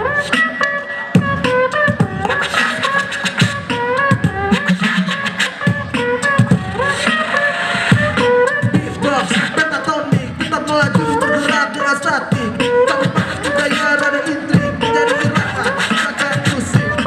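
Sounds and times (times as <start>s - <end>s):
beatboxed kick and snare: 0.0s - 17.0s
voices singing melody notes: 0.0s - 17.0s.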